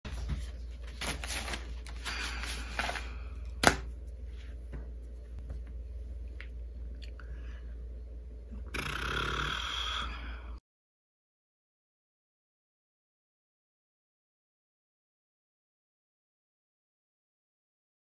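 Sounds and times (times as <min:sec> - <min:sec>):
steady low hum: 0:00.1 - 0:10.6.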